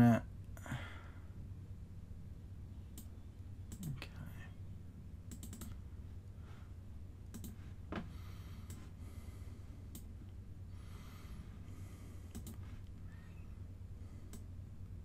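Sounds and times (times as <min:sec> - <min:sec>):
steady low hum: 0:00.0 - 0:15.0
computer mouse clicks: 0:02.9 - 0:03.1, 0:03.7 - 0:04.0, 0:05.3 - 0:05.8, 0:07.3 - 0:07.6, 0:08.6 - 0:08.8, 0:09.9 - 0:10.1, 0:12.3 - 0:12.6, 0:14.3 - 0:14.5.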